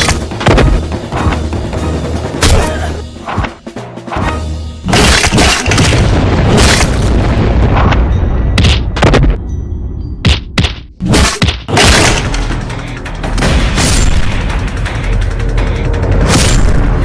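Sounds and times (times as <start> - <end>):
booming punch and stick impacts: 0.0 - 0.9, 8.6 - 9.4, 10.2 - 12.3
loud dense soundtrack music: 0.0 - 17.0.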